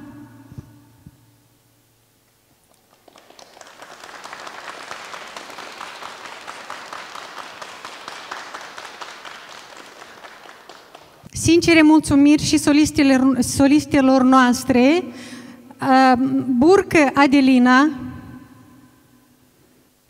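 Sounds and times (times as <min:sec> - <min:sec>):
crowd applauding: 0:02.7 - 0:11.3.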